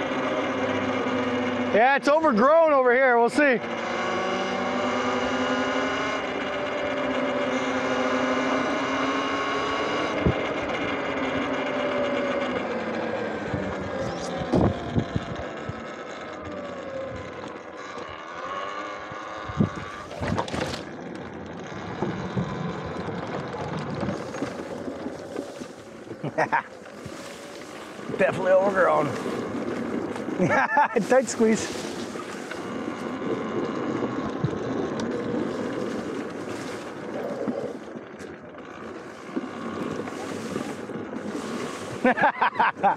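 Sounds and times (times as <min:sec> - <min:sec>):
electric motorbike motor whine: 0:00.0 - 0:42.9.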